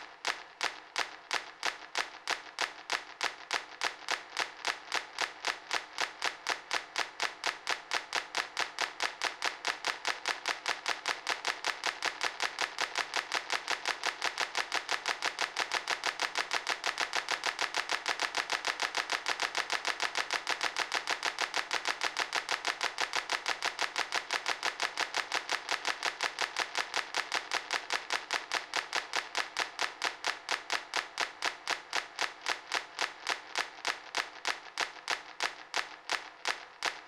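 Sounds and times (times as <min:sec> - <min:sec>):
sharp clap-like clicks: 0:00.0 - 0:37.0.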